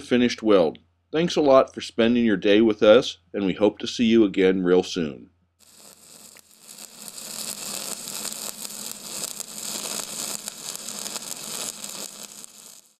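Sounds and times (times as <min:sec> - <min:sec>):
crackling hiss: 0:05.6 - 0:13.0.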